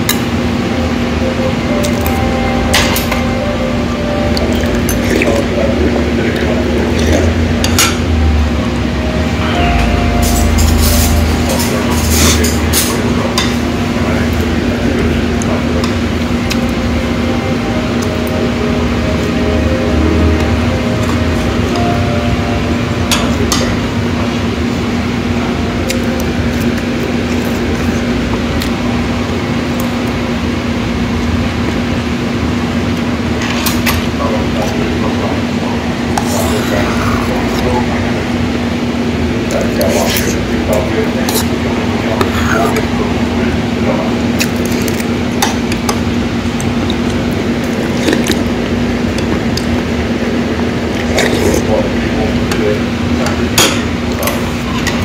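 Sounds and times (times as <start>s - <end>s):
mechanical hum: 0.0s - 55.0s
rushing room noise: 0.0s - 55.0s.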